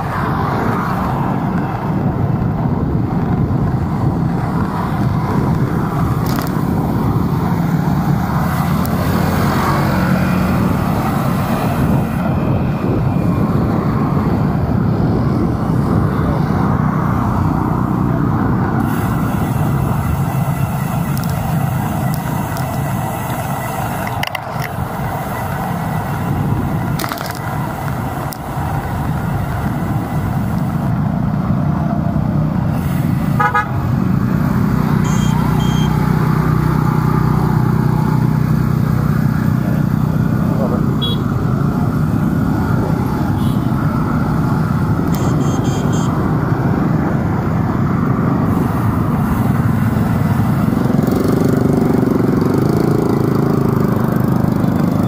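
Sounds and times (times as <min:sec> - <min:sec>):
city traffic rumble: 0:00.0 - 0:55.0
vehicle horn toot: 0:33.4 - 0:33.8, 0:35.0 - 0:36.0, 0:41.0 - 0:41.3, 0:45.2 - 0:46.2.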